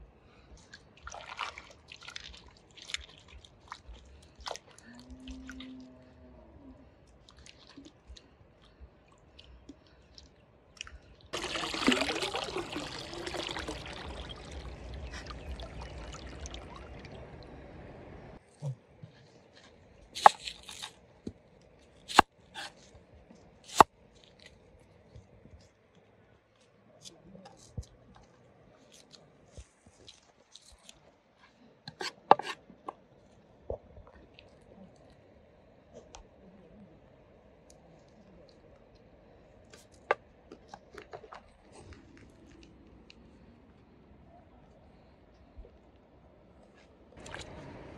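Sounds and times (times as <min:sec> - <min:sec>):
water pouring: 0:11.4 - 0:18.0
knife slicing onion: 0:20.2 - 0:20.9, 0:22.1 - 0:22.8.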